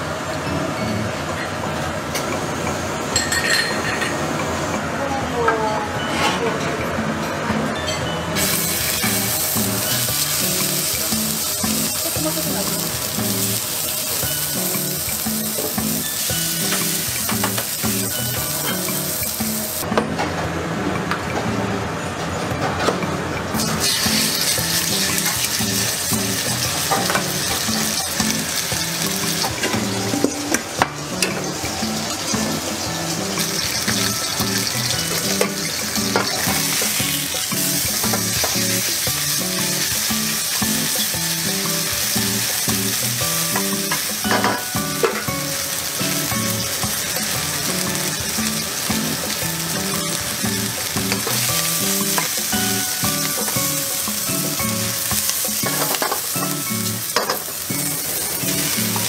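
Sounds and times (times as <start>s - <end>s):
background music: 0.0s - 59.0s
meat sizzling in oil: 8.4s - 19.8s, 23.6s - 30.2s, 31.1s - 59.0s.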